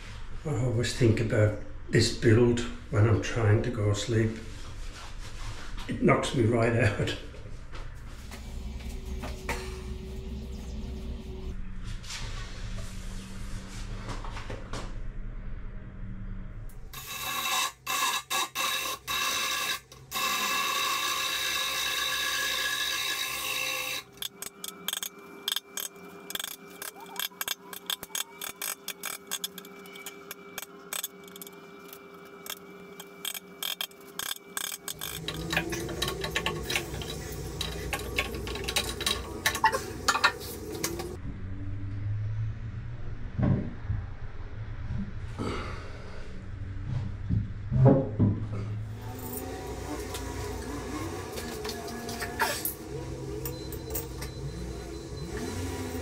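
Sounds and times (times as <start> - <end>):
power drill drilling into wood: 17.0 - 24.3.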